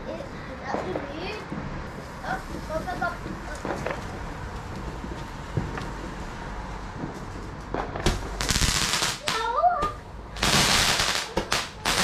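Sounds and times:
fireworks hissing bursts: 8.3s - 9.5s, 10.4s - 12.0s.

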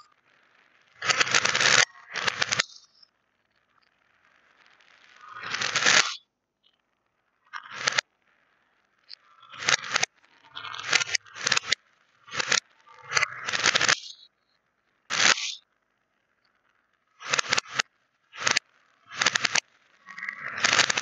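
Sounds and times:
reversed beads rattling on plastic: 9.5s - 14.1s, 17.2s - 17.8s, 18.4s - 19.6s, 20.4s - 21.0s.

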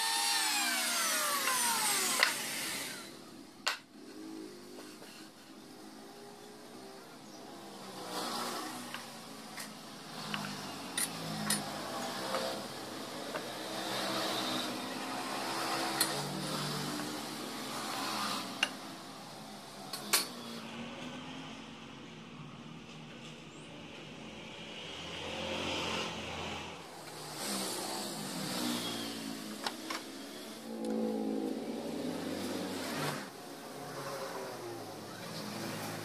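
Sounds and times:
passing vehicle engine hum: 23.9s - 36.0s.

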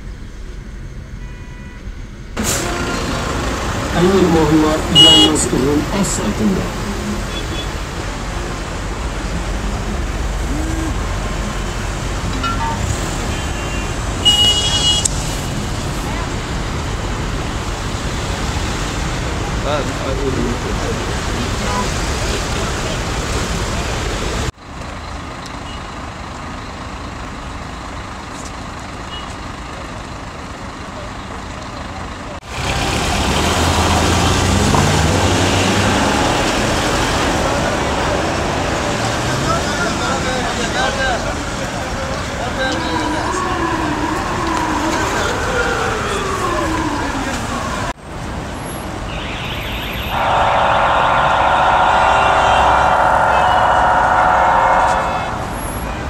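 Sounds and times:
hum of traffic: 0.0s - 56.0s
idling car and bus engines: 0.0s - 56.0s
high-pitched tone: 2.4s - 13.2s, 50.1s - 56.0s.

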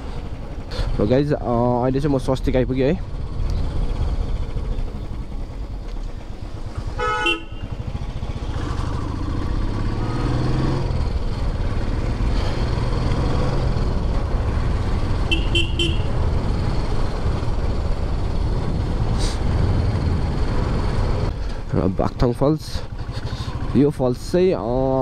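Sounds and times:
motorcycle engine accelerating: 3.0s - 22.0s
horn beeps: 15.3s - 16.1s.

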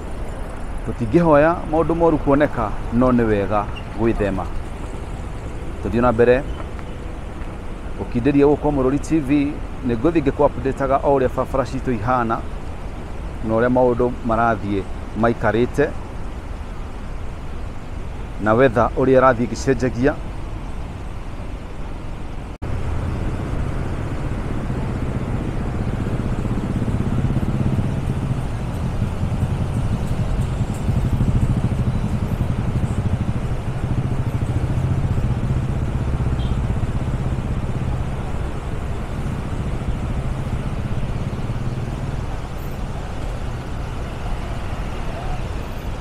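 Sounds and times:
car engines idling in traffic: 0.0s - 46.0s
motorcycle engine: 22.7s - 44.2s.

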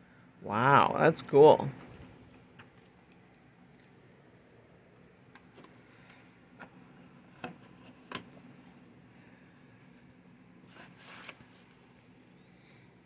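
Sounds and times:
tape sliding into cardboard sleeve: 10.6s - 11.7s.

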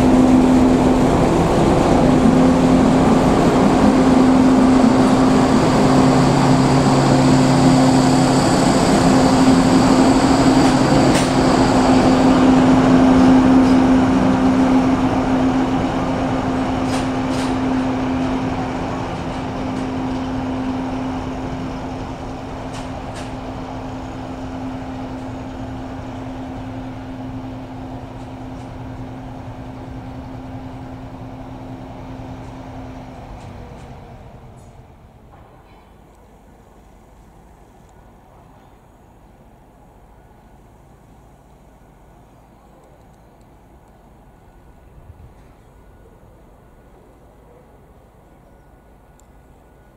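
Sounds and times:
high whine: 0.0s - 32.9s
diesel locomotive engine hum: 0.0s - 49.9s.

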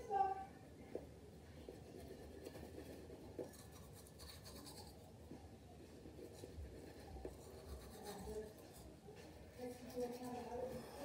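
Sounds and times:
toothbrush scrubbing teeth: 9.6s - 11.0s.

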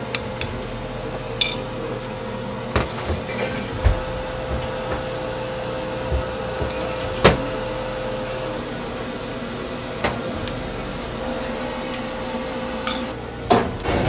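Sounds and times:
kitchen machine hum: 0.0s - 14.0s
kitchenware clinking: 1.4s - 1.8s, 12.8s - 13.2s.

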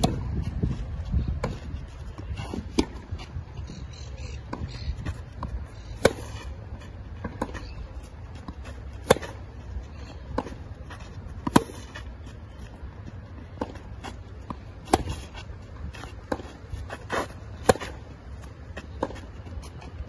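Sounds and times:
racket hitting tennis ball: 0.0s - 0.3s, 2.3s - 3.1s, 4.5s - 7.6s, 8.4s - 9.5s, 10.3s - 12.1s, 13.5s - 19.3s
tennis ball bouncing: 0.0s - 0.3s, 1.4s - 3.1s, 4.4s - 9.6s, 10.2s - 20.0s.

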